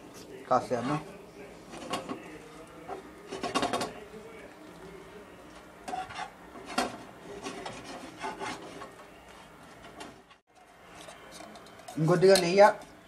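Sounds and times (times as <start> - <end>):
spatula scraping frying pan: 0.6 - 3.9, 5.5 - 12.1.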